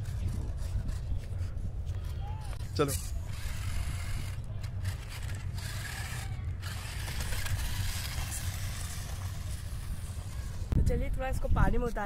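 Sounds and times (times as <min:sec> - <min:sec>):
toy truck motor and gears whirring: 0:00.0 - 0:10.8.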